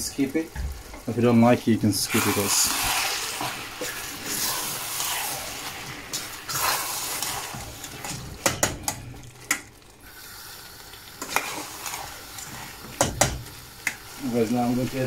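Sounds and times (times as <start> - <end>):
food sizzling in oil: 0.0 - 15.0
spoon knocking against pan: 8.4 - 9.6, 12.9 - 14.0
metal spoon stirring: 11.2 - 14.0.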